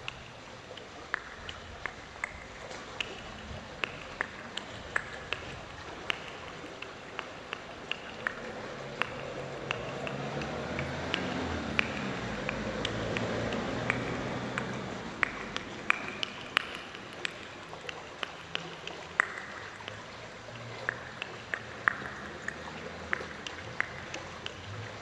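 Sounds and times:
stream trickling: 0:00.0 - 0:25.0
water plinks and drips: 0:00.0 - 0:25.0.

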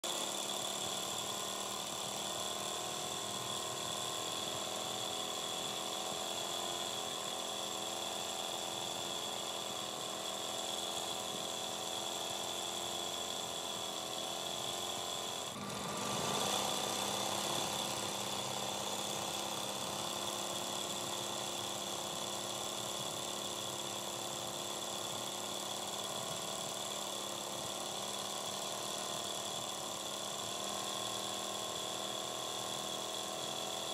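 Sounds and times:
sewing machine running: 0:00.1 - 0:33.9.

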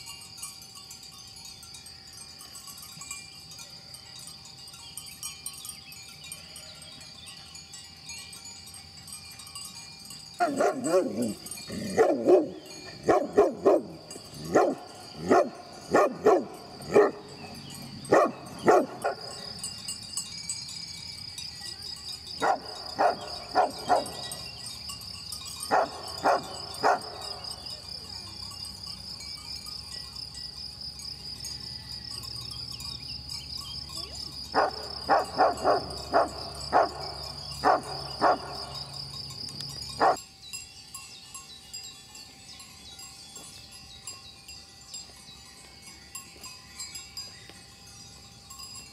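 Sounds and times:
dog barking: 0:10.4 - 0:17.2, 0:18.1 - 0:19.3, 0:22.4 - 0:24.2, 0:25.7 - 0:27.2, 0:34.6 - 0:37.0, 0:37.6 - 0:38.5.

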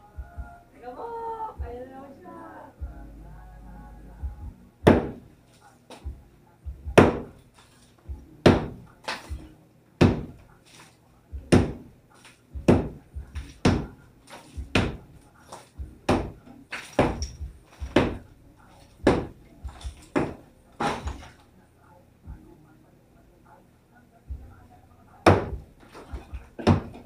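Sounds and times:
sledgehammer hitting masonry wall: 0:04.8 - 0:05.3, 0:06.9 - 0:07.4, 0:08.4 - 0:09.4, 0:10.0 - 0:10.4, 0:11.5 - 0:11.9, 0:12.6 - 0:15.1, 0:16.0 - 0:18.2, 0:19.0 - 0:21.4, 0:25.2 - 0:27.0
broken pieces falling: 0:15.4 - 0:18.2, 0:18.8 - 0:21.4.

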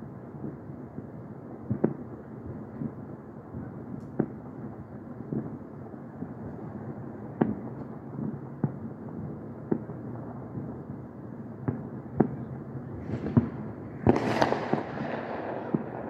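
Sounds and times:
fireworks bangs: 0:11.6 - 0:16.0.

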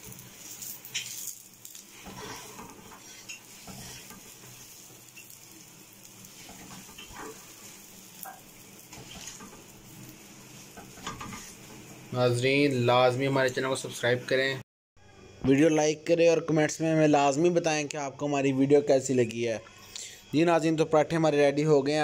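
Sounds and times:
spatula scraping and tapping pan: 0:00.0 - 0:12.1
flatbread sizzling on griddle: 0:00.0 - 0:14.2.

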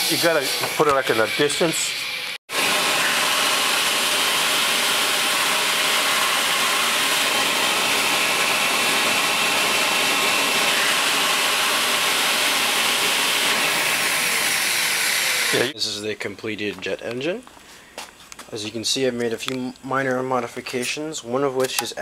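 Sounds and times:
electric blower rushing air: 0:00.0 - 0:15.8.

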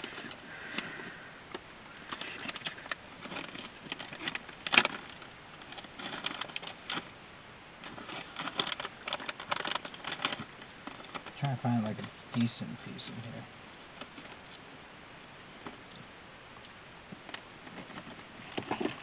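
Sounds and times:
plastic bag crinkling: 0:02.0 - 0:07.2, 0:07.8 - 0:12.0, 0:17.2 - 0:19.0.

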